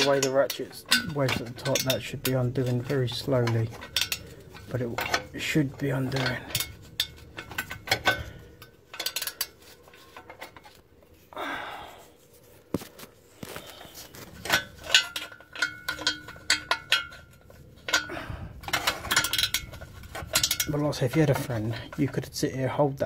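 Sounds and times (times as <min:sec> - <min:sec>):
metal-on-metal clinks: 0:14.4 - 0:22.2.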